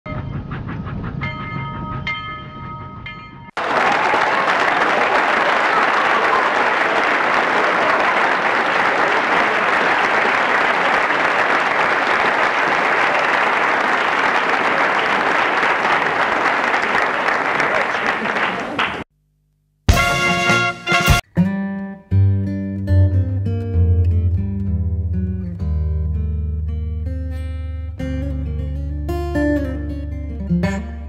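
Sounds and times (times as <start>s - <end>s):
audience applause: 3.6s - 19.1s.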